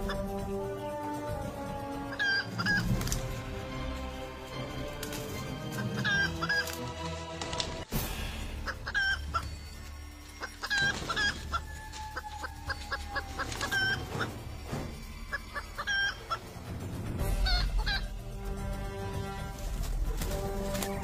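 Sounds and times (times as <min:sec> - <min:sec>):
junglefowl clucking: 0:00.0 - 0:00.5, 0:01.6 - 0:03.4, 0:05.6 - 0:07.1, 0:08.6 - 0:18.3.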